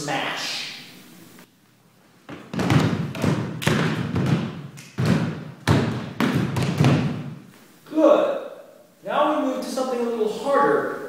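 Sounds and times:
thumps on wooden floor: 2.3s - 7.4s.

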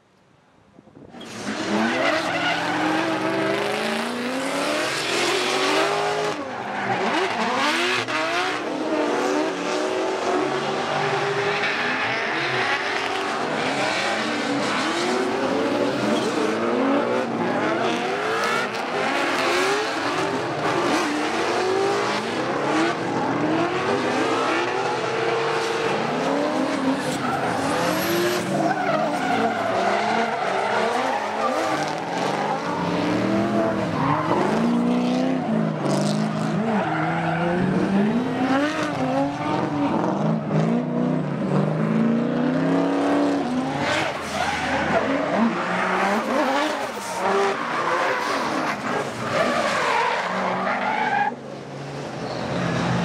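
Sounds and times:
tyres skidding and squealing: 1.1s - 53.0s
car engines revving: 1.2s - 53.0s.

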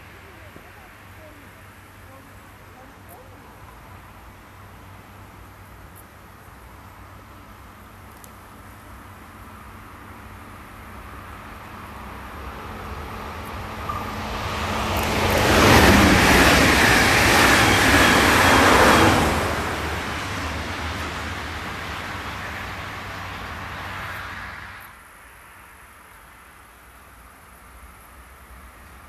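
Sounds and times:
train wheels rumbling on rails: 10.8s - 24.8s.

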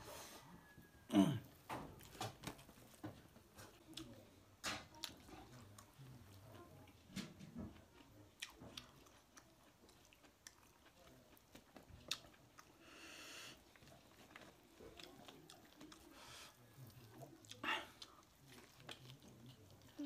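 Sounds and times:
man chewing food: 0.5s - 20.0s.

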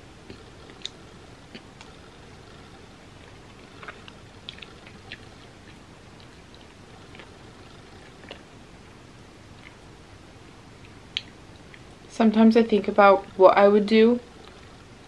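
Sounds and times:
person chewing: 0.2s - 8.6s, 9.5s - 9.8s.

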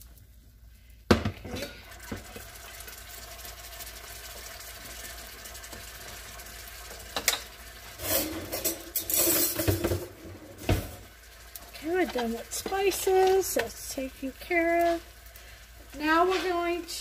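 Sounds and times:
low background hum: 0.0s - 17.0s
kitchen things clattering: 7.1s - 11.0s, 16.0s - 16.8s.

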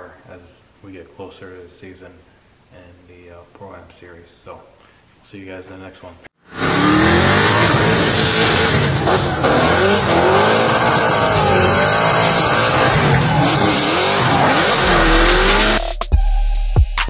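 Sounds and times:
car engines revving: 6.5s - 15.8s.

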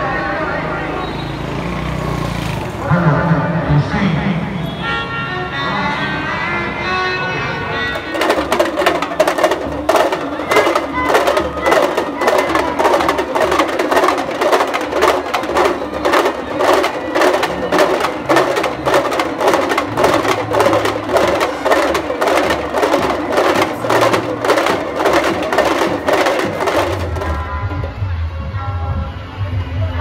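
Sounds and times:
drum beating: 7.9s - 28.0s.

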